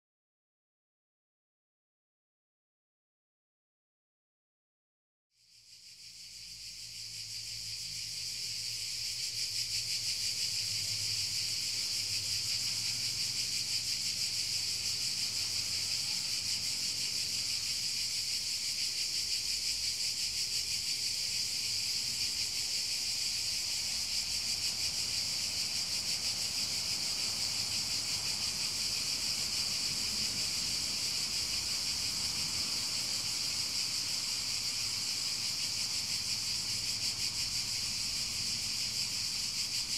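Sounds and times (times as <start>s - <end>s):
insects trilling: 5.4s - 39.9s.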